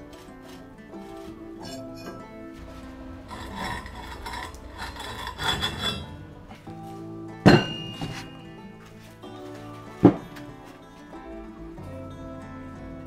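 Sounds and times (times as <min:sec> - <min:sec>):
iron parts scraping: 0:00.0 - 0:07.0
background music: 0:00.0 - 0:13.0
sharp iron knock: 0:07.5 - 0:08.3.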